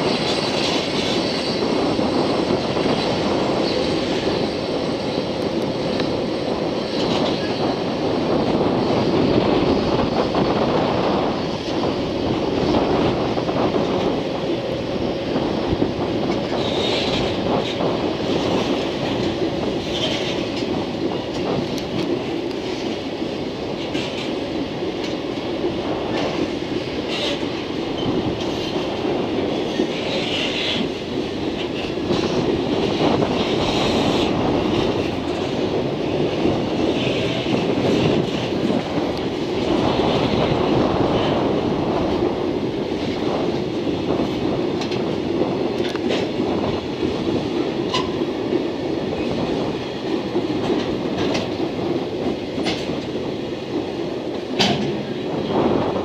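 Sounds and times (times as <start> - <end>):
freight train rolling past: 0.0 - 56.0
wheels clicking over rail joints: 47.8 - 53.1.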